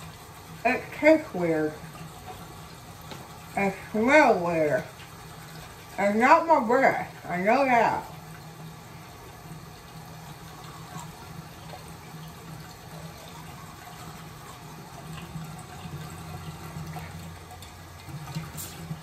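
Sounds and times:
tap running into sink: 3.0 - 3.4.

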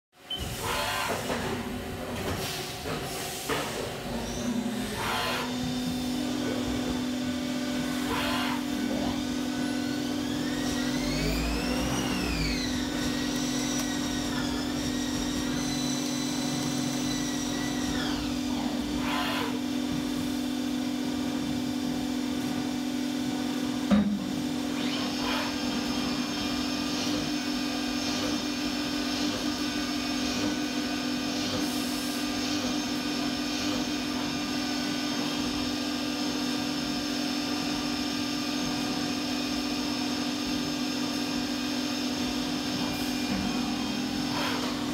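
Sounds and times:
high machine whines: 0.2 - 44.9
metal cutting noise: 0.6 - 1.6, 3.9 - 19.9, 36.2 - 44.9
lathe spindle motor hum: 4.0 - 23.8, 24.4 - 44.9.

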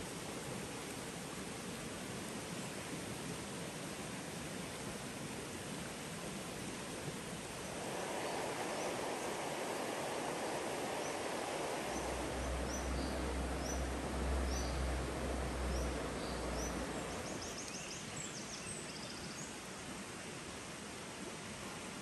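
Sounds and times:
river flowing over stones: 0.0 - 22.0
low hum: 7.7 - 17.5.

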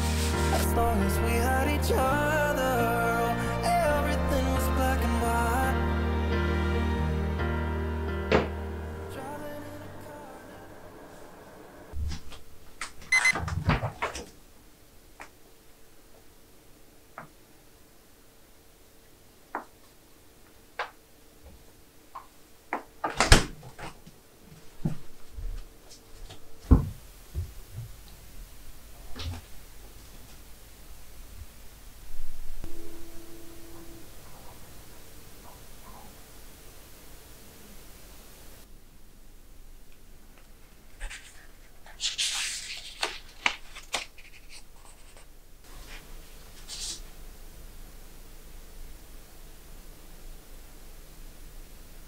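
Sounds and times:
paper swish: 0.0 - 0.8, 41.0 - 45.2, 46.6 - 47.0
book pages rustling: 40.9 - 47.0
crisp paper snaps: 42.0 - 45.2.

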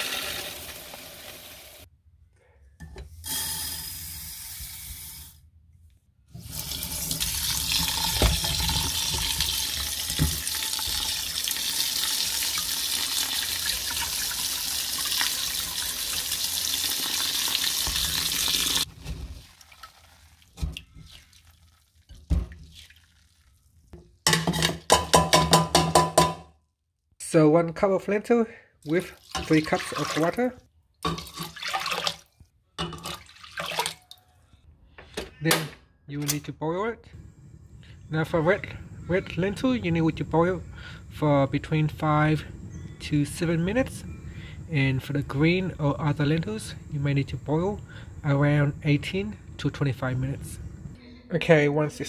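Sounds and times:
tap water running onto sieve: 6.4 - 23.6, 28.8 - 30.4, 31.0 - 32.3, 33.0 - 34.2.

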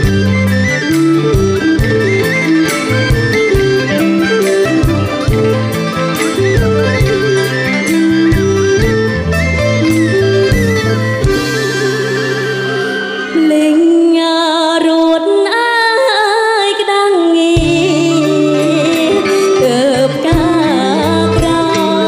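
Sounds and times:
live band: 0.0 - 22.0
woman singing ornamented melody: 11.5 - 22.0.

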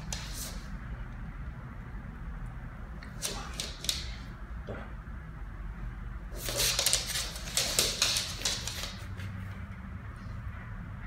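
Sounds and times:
dog claws clicking on floor: 0.0 - 0.7, 3.0 - 4.3, 6.3 - 9.3.

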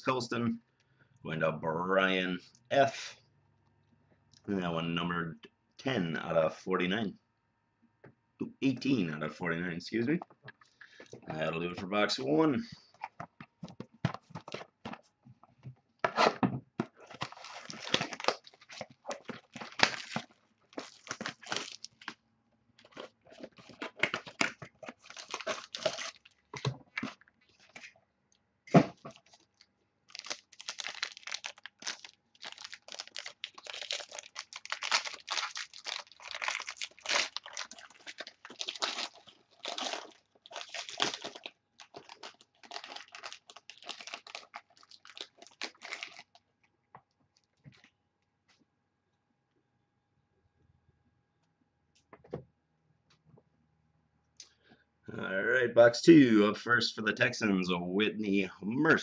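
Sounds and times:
wrappers crinkling and tearing: 16.9 - 22.2, 22.8 - 28.0, 29.0 - 46.4.

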